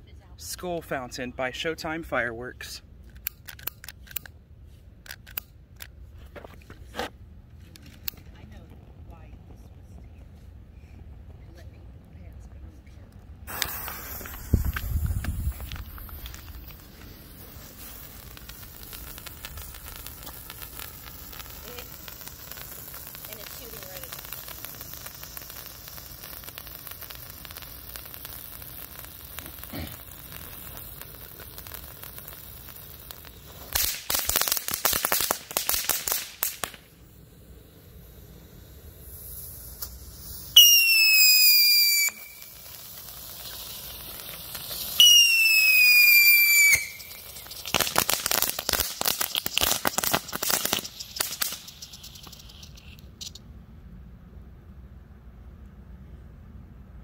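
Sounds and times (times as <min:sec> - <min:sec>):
firework crackling: 0:05.0 - 0:53.4
firework hissing: 0:13.3 - 0:53.4
firework whistles: 0:13.5 - 0:53.4.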